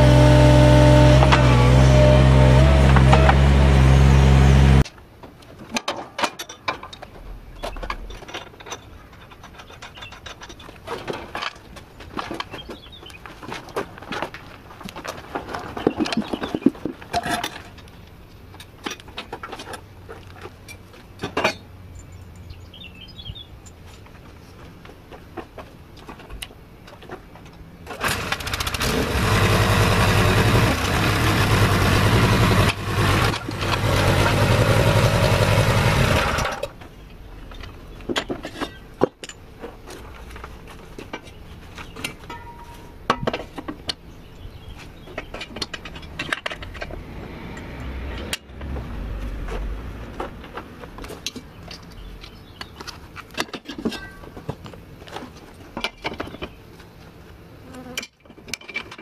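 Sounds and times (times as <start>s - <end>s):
small petrol engine running: 0.0s - 4.8s, 27.9s - 36.8s.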